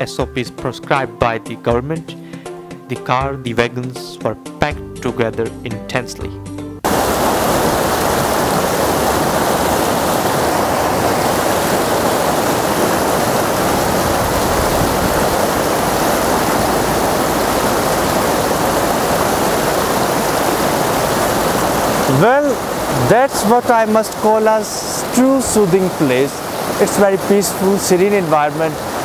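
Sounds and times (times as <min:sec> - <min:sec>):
stream rushing over rocks: 0:06.8 - 0:29.0.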